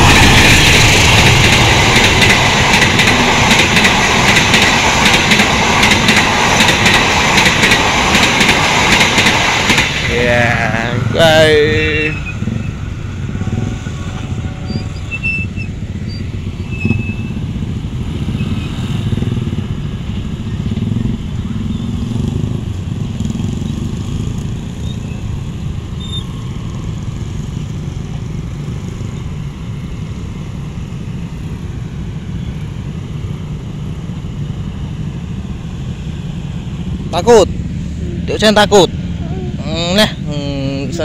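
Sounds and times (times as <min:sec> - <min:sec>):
scooter engines droning: 0:10.0 - 0:35.3.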